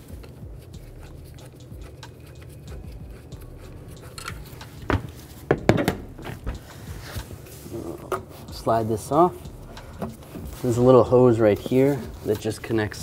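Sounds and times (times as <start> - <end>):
screwdriver clicking and scraping: 0.2 - 5.1
hose clamp and duct rattling: 9.6 - 12.6.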